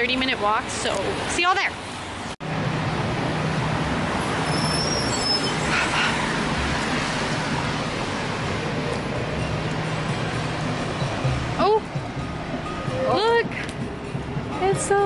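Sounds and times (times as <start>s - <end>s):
passing vehicles: 0.0s - 15.0s
brief high squeal: 4.4s - 6.2s.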